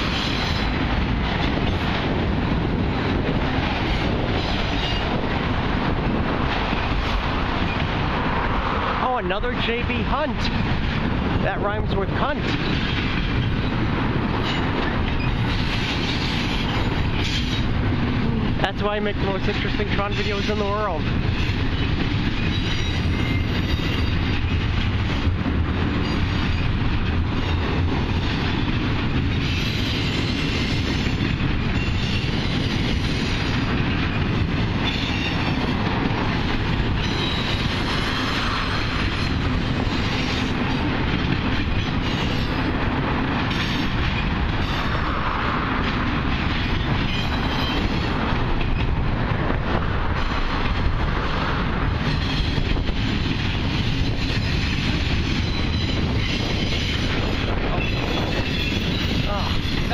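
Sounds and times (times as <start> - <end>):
freight train wheels clattering: 0.0 - 59.9.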